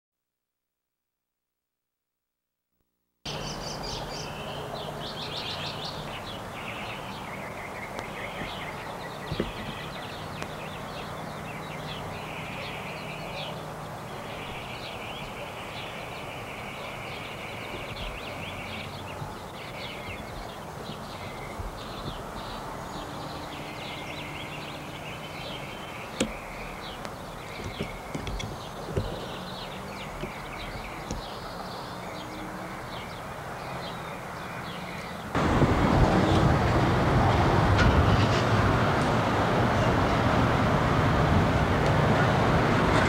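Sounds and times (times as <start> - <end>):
small birds chirping and trilling: 3.3 - 35.4.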